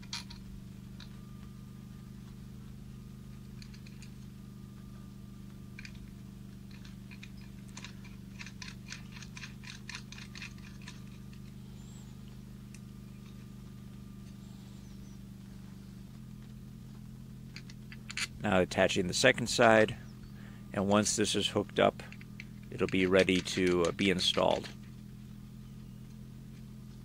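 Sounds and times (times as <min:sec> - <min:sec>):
steady low hum: 0:00.0 - 0:27.0
nut turning metallic clicks: 0:05.8 - 0:13.4, 0:17.5 - 0:18.4, 0:20.2 - 0:25.1.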